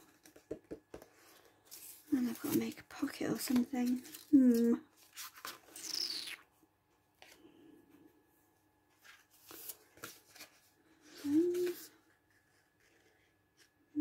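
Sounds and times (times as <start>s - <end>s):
paper rustling and sliding: 8.9s - 13.8s.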